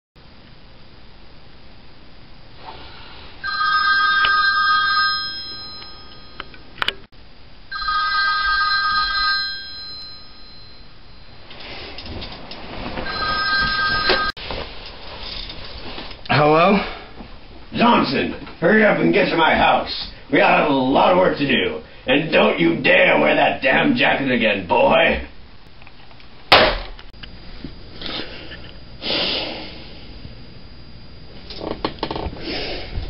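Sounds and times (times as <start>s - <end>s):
telephone ringing: 3.4s - 6.8s, 7.7s - 11.4s, 13.0s - 14.4s.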